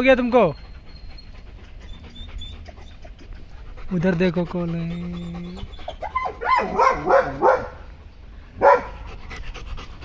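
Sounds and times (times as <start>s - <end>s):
dog whining and yipping: 0.4s - 4.0s, 4.7s - 7.7s
dog barking loudly: 6.0s - 7.9s, 8.6s - 9.1s.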